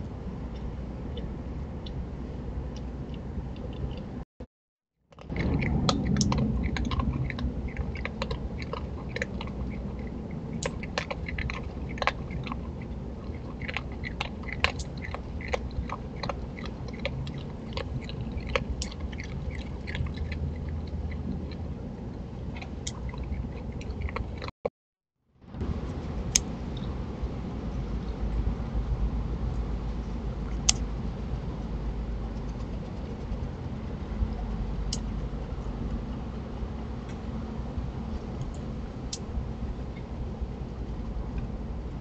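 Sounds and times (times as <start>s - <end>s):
opossum chewing dry food: 5.2s - 24.5s.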